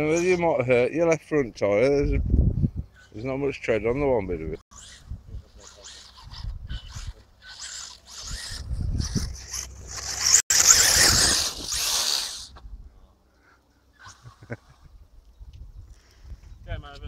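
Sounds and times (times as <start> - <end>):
rc car motor and tyres on dirt: 4.4 - 12.8.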